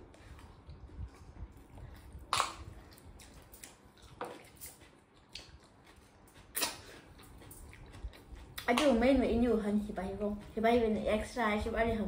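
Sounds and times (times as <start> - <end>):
chewing and wet mouth noises: 0.0 - 10.6
mouth smacks: 2.0 - 8.7.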